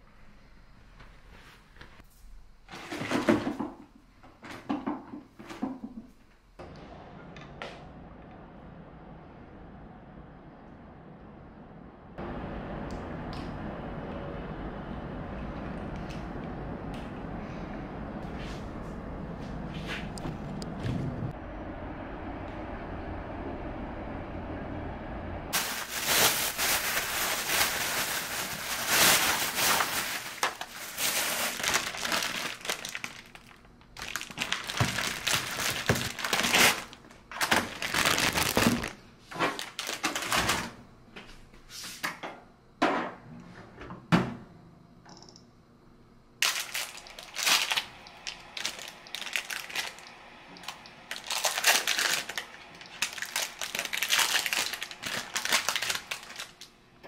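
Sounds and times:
plastic bag crinkling: 0:25.5 - 0:40.7, 0:46.4 - 0:56.7.

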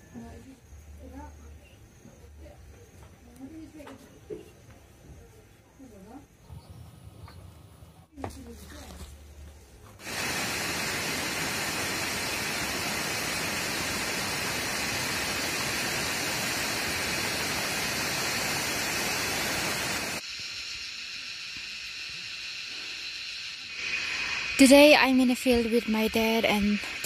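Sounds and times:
steady background hiss: 0:09.2 - 0:27.0
stream rushing over stones: 0:10.0 - 0:20.2.

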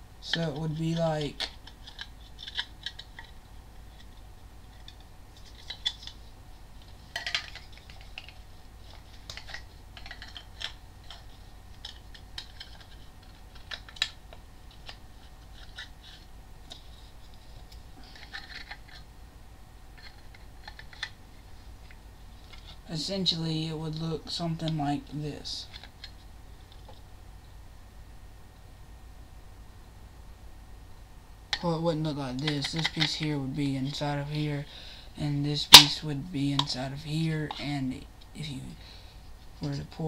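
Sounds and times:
hard plastic parts clicking and rattling: 0:01.3 - 0:06.2, 0:07.1 - 0:19.1, 0:20.0 - 0:21.2, 0:32.5 - 0:33.2.

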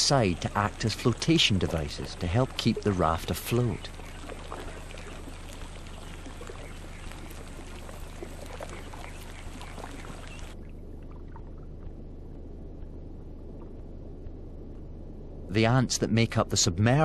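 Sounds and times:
water drips and plops: 0:00.0 - 0:12.0
water trickling and bubbling: 0:00.0 - 0:15.0
low steady hum: 0:00.0 - 0:17.0.

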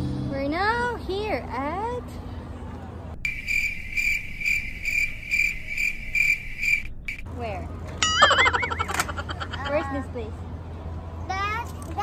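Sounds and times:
crickets chirping: 0:03.2 - 0:07.2.

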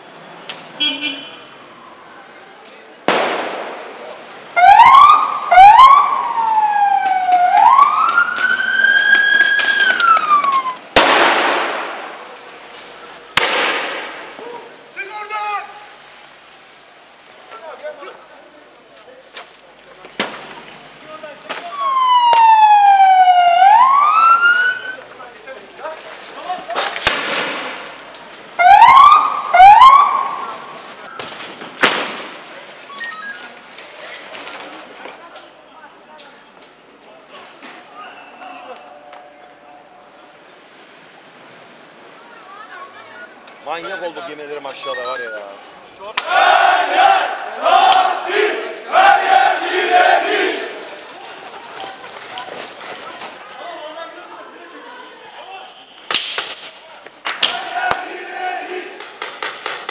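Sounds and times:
police siren whooping and wailing: 0:04.6 - 0:10.8, 0:21.7 - 0:25.0, 0:28.6 - 0:30.6.

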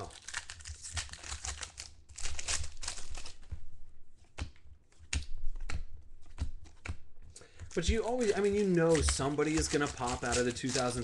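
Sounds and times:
wrapper crinkling and tearing: 0:00.0 - 0:03.5, 0:07.7 - 0:11.0.

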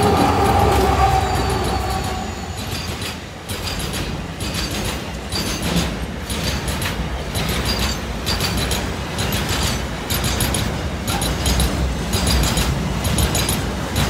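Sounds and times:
locomotive engine drone: 0:00.0 - 0:04.1
train wagons rumbling: 0:00.0 - 0:14.0
wheels clicking over rail joints: 0:01.5 - 0:14.0.

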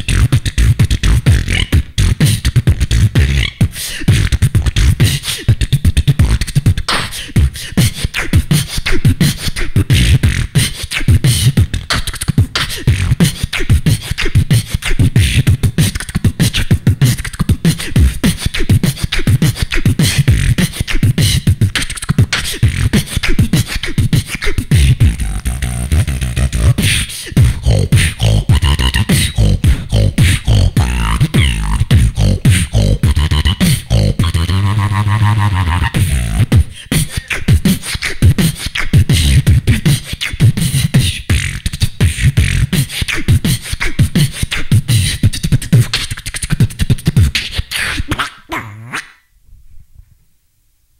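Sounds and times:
person beatboxing into a microphone: 0:00.0 - 0:49.2
hummed tones: 0:25.0 - 0:36.5.

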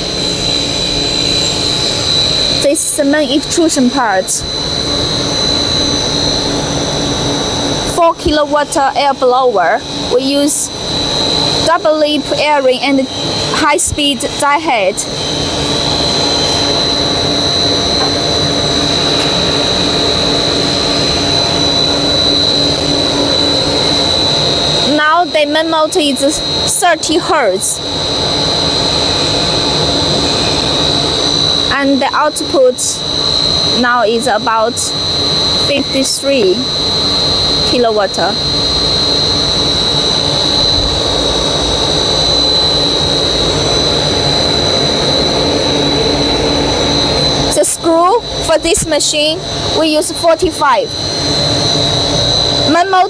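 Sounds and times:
constant high whine: 0:00.0 - 0:53.0
extrusion machine humming: 0:00.0 - 0:53.0.

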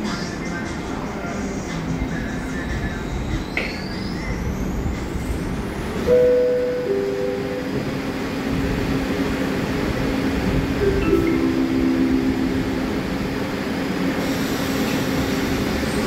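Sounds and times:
steady train hum: 0:00.0 - 0:16.0
train doors sliding shut: 0:04.9 - 0:16.0
two-note door chime: 0:06.1 - 0:07.8, 0:10.8 - 0:13.3.

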